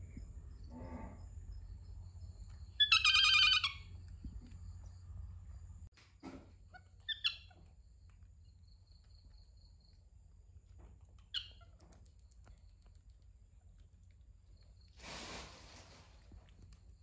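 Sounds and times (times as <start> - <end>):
faint low hum: 0.0 - 15.0
baby monkey squeaking: 2.7 - 3.9, 6.8 - 7.6, 11.2 - 11.8.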